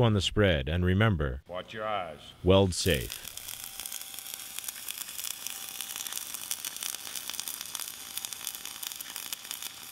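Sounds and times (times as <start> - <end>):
welding arc crackling: 2.8 - 9.9.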